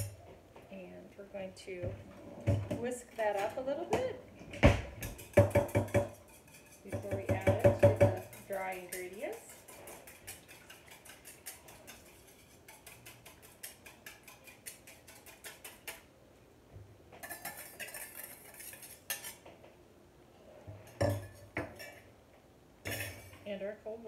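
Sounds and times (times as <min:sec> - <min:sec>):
whisk clicking in metal bowl: 0:05.0 - 0:16.1, 0:17.2 - 0:19.4.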